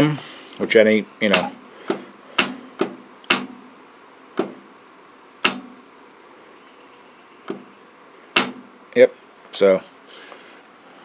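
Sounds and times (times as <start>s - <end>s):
sharp metal knocks with ring: 1.4s - 3.7s, 5.4s - 5.8s, 8.4s - 8.7s.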